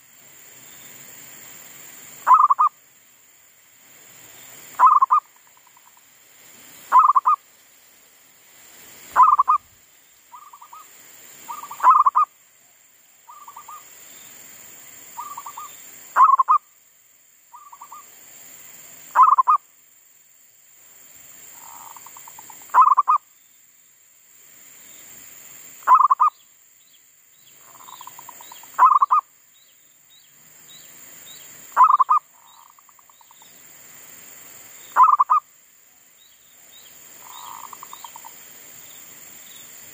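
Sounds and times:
dove cooing: 0:09.2 - 0:09.6, 0:11.5 - 0:12.3.

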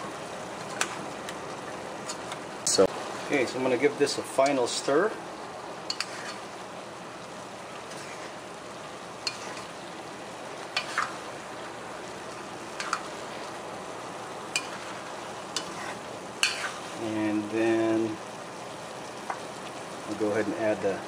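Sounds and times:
steady sizzle: 0:00.0 - 0:21.0
spoon stirring a pot: 0:05.9 - 0:06.4, 0:09.2 - 0:09.7, 0:10.7 - 0:11.2, 0:12.7 - 0:13.2, 0:14.5 - 0:17.0.

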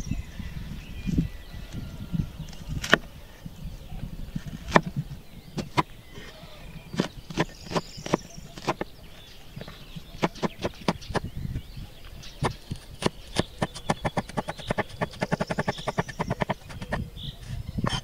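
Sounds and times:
birds chirping: 0:00.0 - 0:18.0
knife chopping on wooden board: 0:05.6 - 0:05.9, 0:07.0 - 0:08.9, 0:10.2 - 0:11.2, 0:12.4 - 0:17.0.

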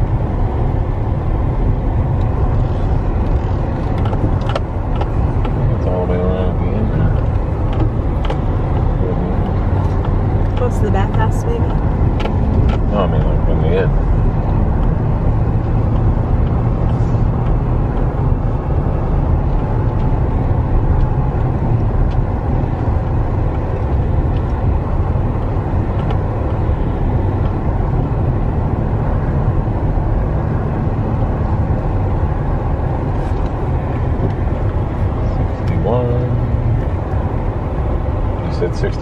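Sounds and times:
vehicle engine and tyre rumble: 0:00.0 - 0:39.0.

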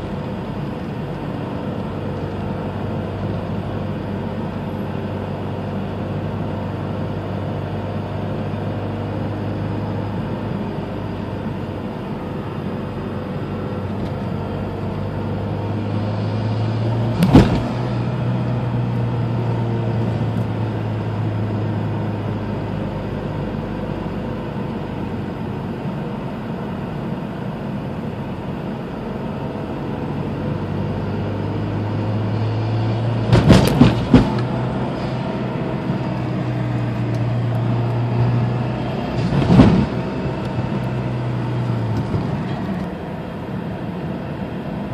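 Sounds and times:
car engine running: 0:00.0 - 0:44.9
engine backfire bang: 0:17.1 - 0:18.1, 0:33.2 - 0:35.2, 0:39.2 - 0:40.0.

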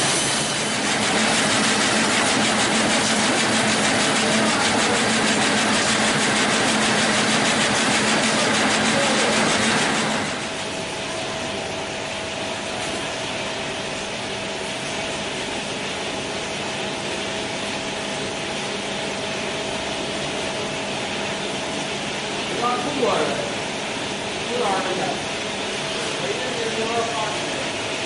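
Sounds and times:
machine rapid clatter: 0:00.0 - 0:10.7
punch press whine: 0:00.0 - 0:13.0
machine hum: 0:00.0 - 0:28.0.

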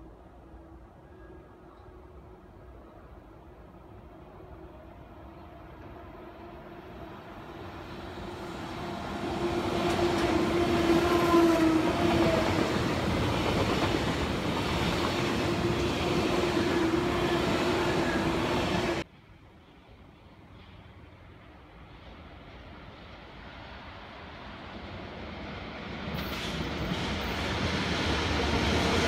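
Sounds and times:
electric train passing: 0:00.0 - 0:29.0.

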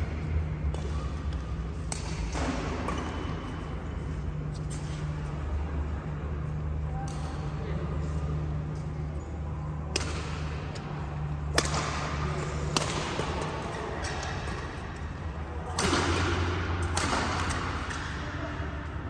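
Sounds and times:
steady low hum: 0:00.0 - 0:19.0
rackets striking shuttlecock: 0:00.6 - 0:03.7, 0:09.8 - 0:18.4.

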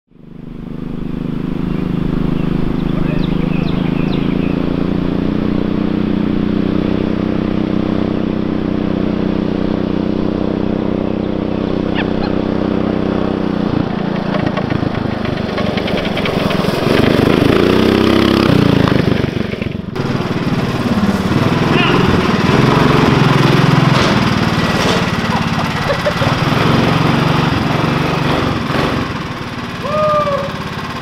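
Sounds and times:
motorbike engine running: 0:00.2 - 0:31.0.

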